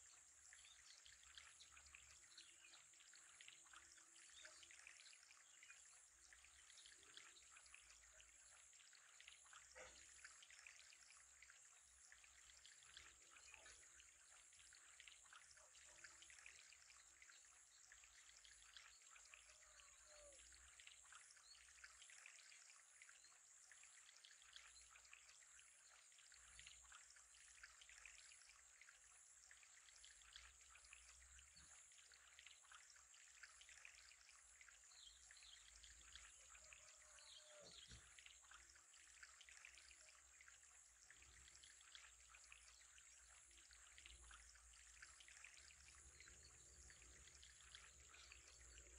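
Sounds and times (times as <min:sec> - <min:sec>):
water trickling in aquarium: 0:00.0 - 0:48.9.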